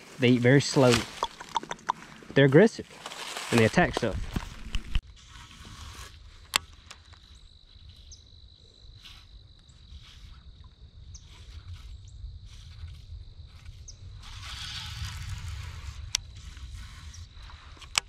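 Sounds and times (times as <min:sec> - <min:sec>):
wind rumble on microphone: 0:03.8 - 0:06.4, 0:07.2 - 0:18.0.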